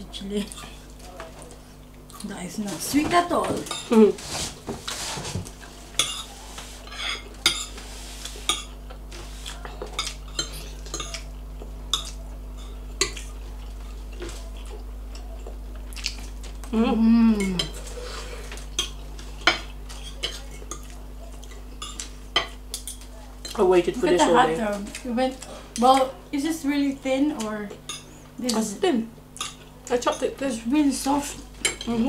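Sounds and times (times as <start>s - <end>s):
steady low hum: 0.0s - 32.0s
person humming: 16.6s - 17.8s.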